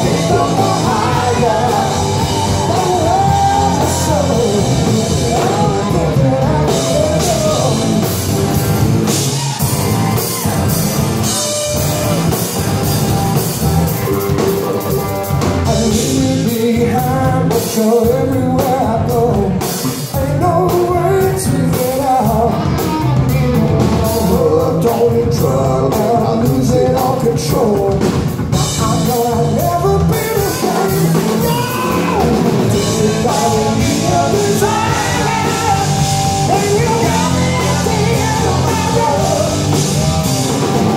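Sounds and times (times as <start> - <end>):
lead voice singing: 0.0 - 13.0, 15.6 - 40.9
rock band playing: 0.0 - 40.9.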